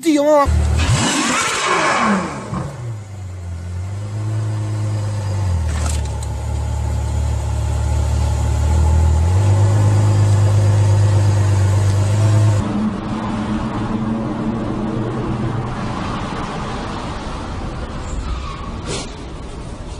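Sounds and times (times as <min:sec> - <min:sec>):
car engine running at low revs: 0:00.5 - 0:15.9
car running noise: 0:00.5 - 0:18.0.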